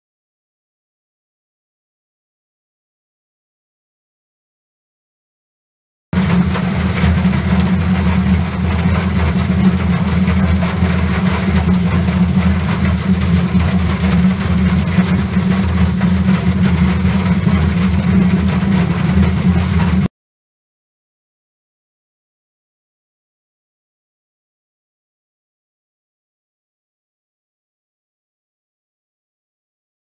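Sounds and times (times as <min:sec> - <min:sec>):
low motor hum: 0:06.2 - 0:20.1
roots tumbling in abrasive drum: 0:06.2 - 0:20.1.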